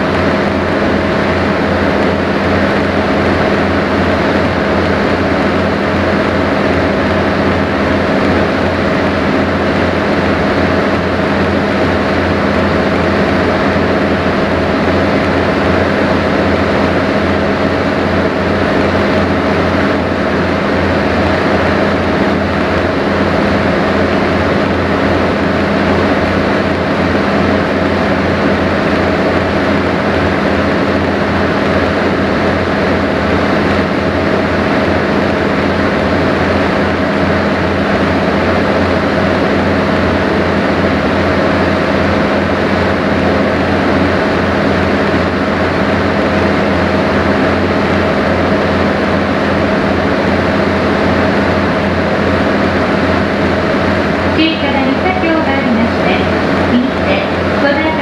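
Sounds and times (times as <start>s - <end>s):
boat engine humming: 0.0s - 58.0s
steady tones: 51.8s - 58.0s.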